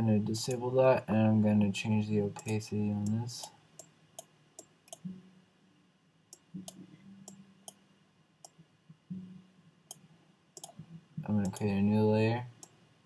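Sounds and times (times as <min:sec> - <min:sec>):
faint low hum: 0:00.0 - 0:13.0
computer mouse clicking: 0:10.6 - 0:10.8, 0:11.4 - 0:11.7.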